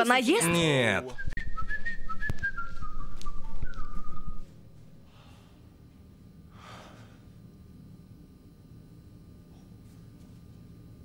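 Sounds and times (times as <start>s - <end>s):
person whistling a tune: 1.2s - 4.4s.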